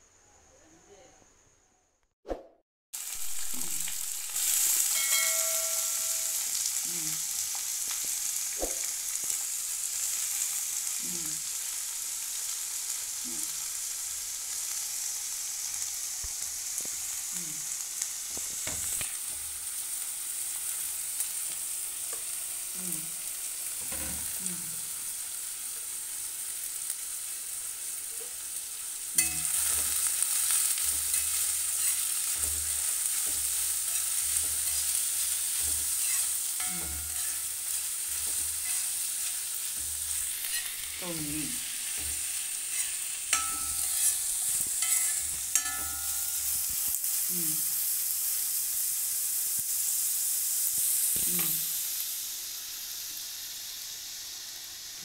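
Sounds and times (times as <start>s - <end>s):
onions sizzling in oil: 3.0s - 55.0s
steel spoon scraping pan: 29.2s - 41.0s, 41.8s - 46.7s.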